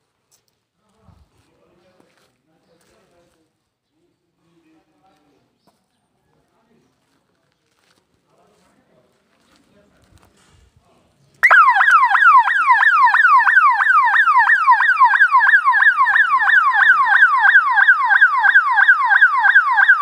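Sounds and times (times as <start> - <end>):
electronic siren wailing: 11.4 - 20.0.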